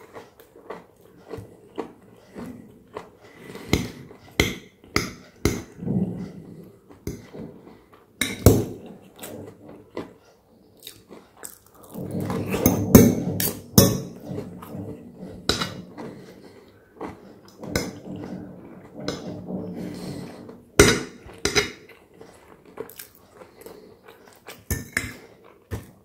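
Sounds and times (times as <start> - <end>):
chewing: 0.0 - 8.2, 8.8 - 12.1, 15.9 - 18.8, 21.3 - 26.0
cutlery clinking and scraping on bowl: 8.2 - 10.2, 19.1 - 26.0.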